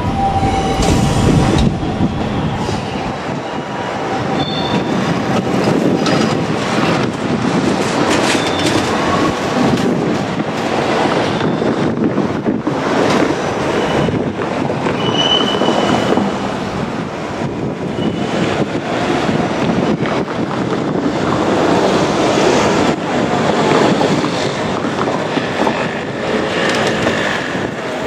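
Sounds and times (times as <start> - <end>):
high-pitched wheel squeals: 4.4 - 5.0, 14.9 - 16.5.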